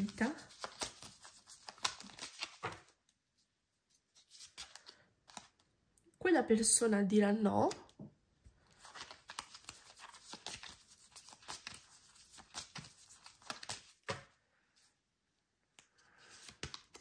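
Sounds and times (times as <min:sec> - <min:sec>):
cards shuffled by hand: 0:00.0 - 0:03.0, 0:04.0 - 0:05.6, 0:08.6 - 0:14.4, 0:15.7 - 0:17.0.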